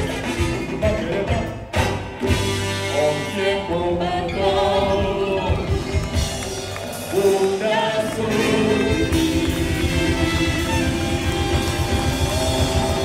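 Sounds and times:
man singing: 0.0 - 2.0, 2.8 - 6.1, 6.9 - 11.0
live band music: 0.0 - 13.0
drum beat: 5.5 - 13.0.

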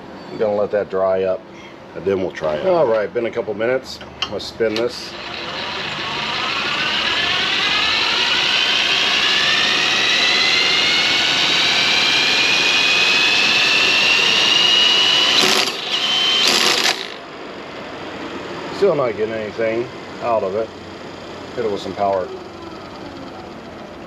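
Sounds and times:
electric motor whining: 4.9 - 17.3.

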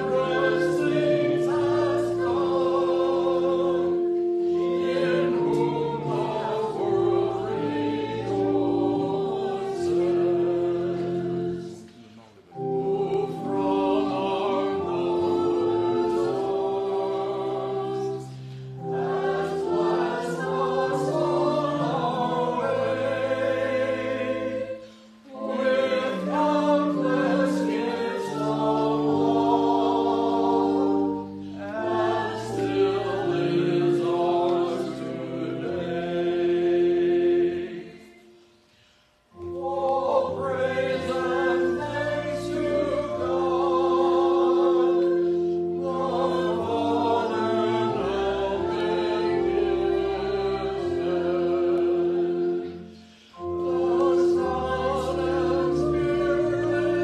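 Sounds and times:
congregation singing a hymn: 0.0 - 57.0.

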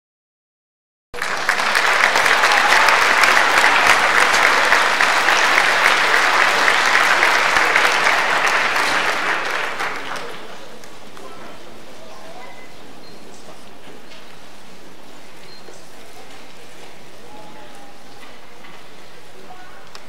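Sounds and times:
audience applauding: 1.2 - 11.0.

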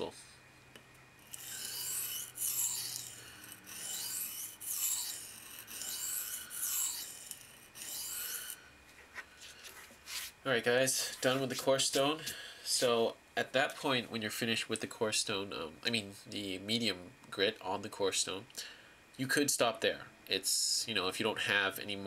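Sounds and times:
knife scraping on sharpening stone: 1.2 - 8.6.

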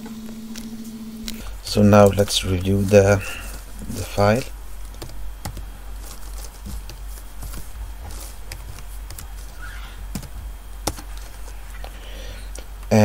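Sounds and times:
computer keyboard keys clicking: 8.5 - 9.3.

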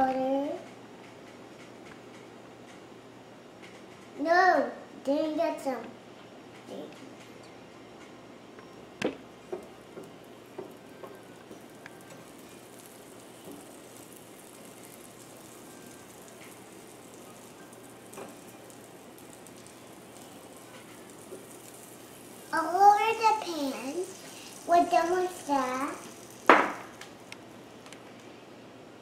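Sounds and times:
butter sizzling in frying pan: 9.4 - 27.7
spatula tapping pan: 20.4 - 22.0.

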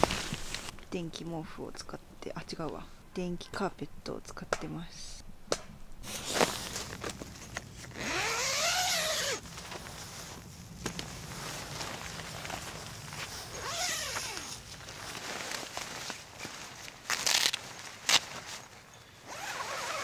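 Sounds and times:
tent fabric rustling: 0.0 - 0.8, 6.0 - 20.0
tent zipper being pulled: 6.0 - 10.4, 11.3 - 18.6, 19.2 - 20.0.

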